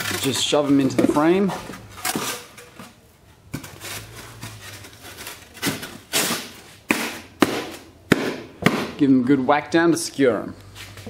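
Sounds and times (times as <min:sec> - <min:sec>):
sharp knocks: 0:06.9 - 0:09.0.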